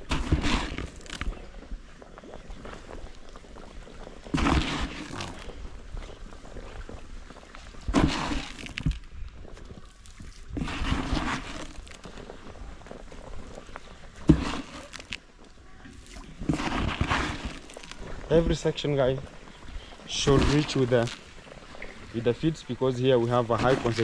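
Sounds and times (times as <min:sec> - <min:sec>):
fish feed splashing on water: 0:00.0 - 0:01.4, 0:04.3 - 0:05.6, 0:07.8 - 0:12.2, 0:16.0 - 0:18.3.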